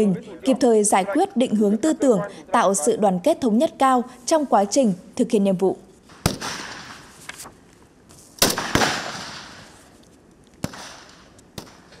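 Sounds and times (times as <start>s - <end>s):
rifle shots echoing: 6.2s - 7.1s, 8.4s - 9.8s, 10.6s - 12.0s.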